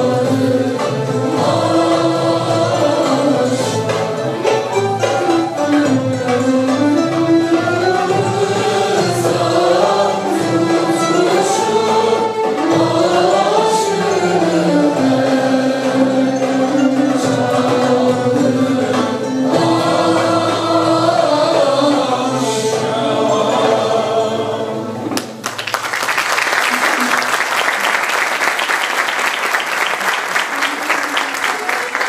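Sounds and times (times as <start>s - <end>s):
frame drum: 0.0s - 24.1s
mixed choir singing: 0.0s - 25.2s
violin: 0.0s - 25.3s
cello: 0.0s - 25.4s.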